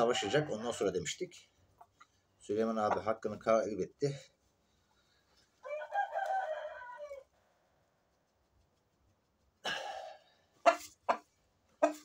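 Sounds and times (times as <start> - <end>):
rooster crowing: 0.0 - 0.6, 5.6 - 7.3
chicken clucks: 1.8 - 3.4, 10.5 - 12.0.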